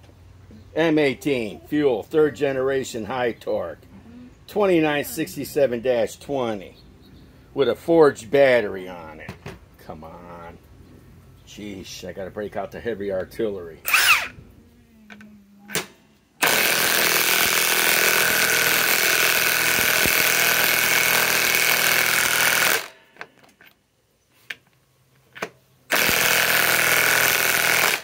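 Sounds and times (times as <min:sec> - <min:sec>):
impact wrench hammering: 0:15.7 - 0:23.3, 0:25.9 - 0:28.0.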